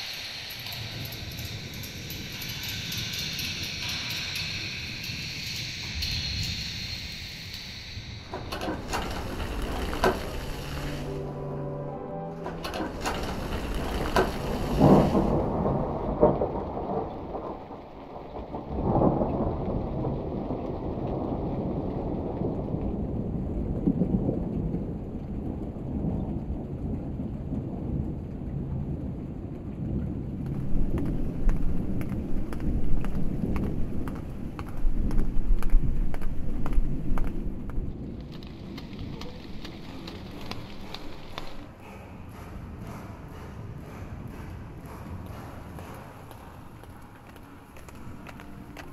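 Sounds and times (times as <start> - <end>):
crackling patter with high hiss: 0.0 - 11.2, 12.6 - 41.8, 45.9 - 48.9
steady rain: 0.0 - 48.9
rolling thunder: 8.0 - 11.6, 12.4 - 41.8.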